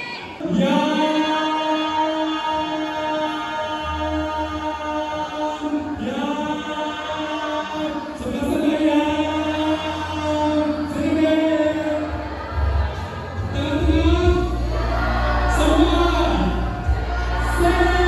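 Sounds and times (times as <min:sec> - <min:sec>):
crowd chanting a drawn-out toast: 0:00.0 - 0:18.0
man's voice over pa: 0:15.4 - 0:18.0.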